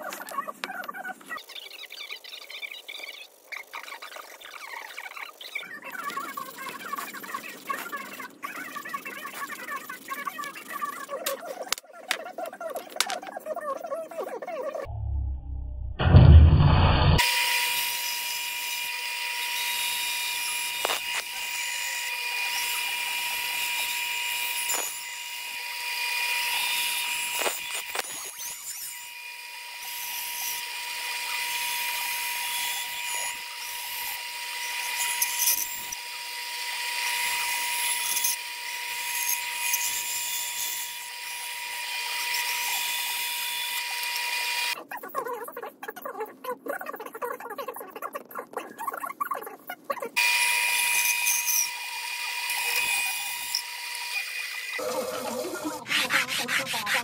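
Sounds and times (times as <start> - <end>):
bandsaw whining: 16.3 - 44.8, 50.2 - 57.0
saw cutting wood: 17.1 - 44.8, 50.2 - 57.0.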